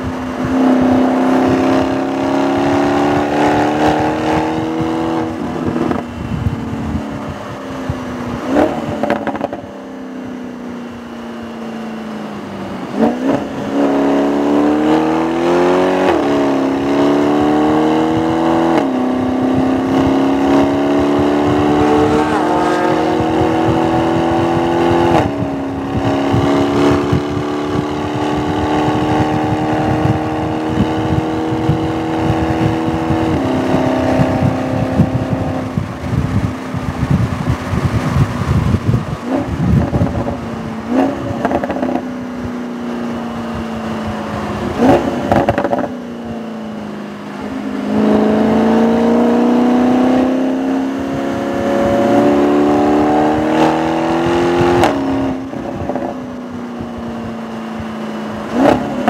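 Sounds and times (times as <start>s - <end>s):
car engine revving hard: 0.0s - 6.3s, 8.3s - 9.7s, 12.8s - 42.2s, 43.5s - 59.0s.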